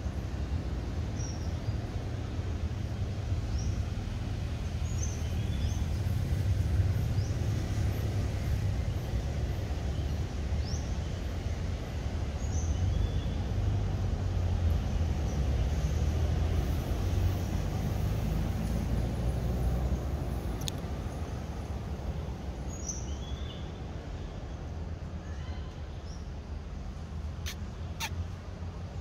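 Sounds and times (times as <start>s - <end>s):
short high bird chirps: 27.4s - 28.2s.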